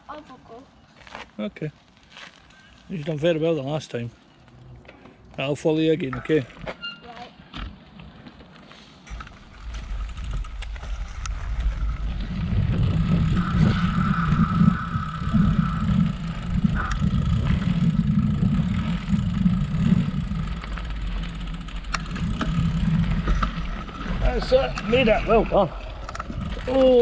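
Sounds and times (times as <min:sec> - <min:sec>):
bike clicks and rattles: 0:03.8 - 0:27.0
tyres rumbling over dirt trail: 0:08.1 - 0:27.0
wind buffeting microphone: 0:09.1 - 0:27.0.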